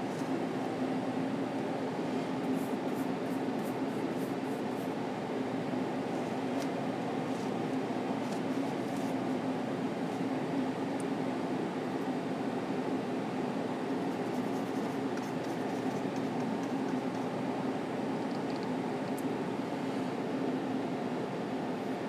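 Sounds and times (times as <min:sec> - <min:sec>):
ventilation hum: 0:00.0 - 0:22.0
paintbrush dabbing ticks: 0:14.2 - 0:17.3.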